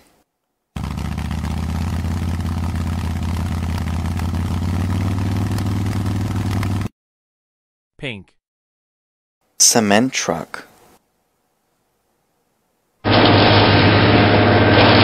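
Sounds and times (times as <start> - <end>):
motorcycle engine idling: 0.8 - 6.9.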